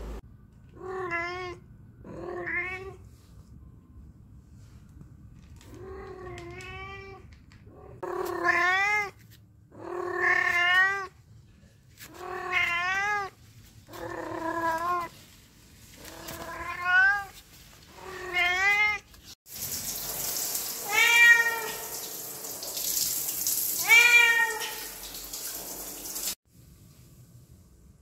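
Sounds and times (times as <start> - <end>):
cat meowing: 0.8 - 3.0, 8.0 - 9.2, 9.8 - 11.2, 12.1 - 15.1, 16.1 - 17.4, 18.0 - 19.1, 20.8 - 21.9, 23.8 - 24.9.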